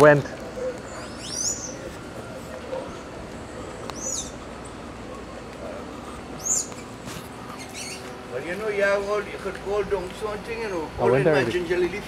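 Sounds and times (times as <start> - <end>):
bird whistling call: 0.9 - 1.9, 3.9 - 4.4, 6.4 - 6.7, 7.6 - 8.1.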